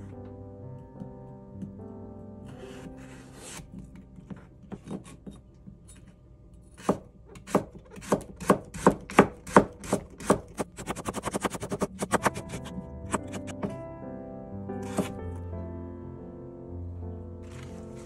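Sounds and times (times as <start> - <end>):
knife chopping on cutting board: 6.8 - 13.7, 14.8 - 15.2.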